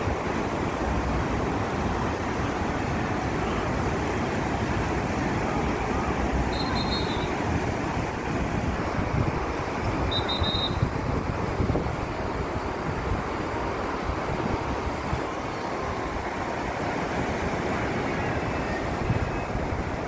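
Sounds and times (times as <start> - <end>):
surf breaking on beach: 0.0 - 20.0
strong wind buffeting microphone: 7.3 - 20.0.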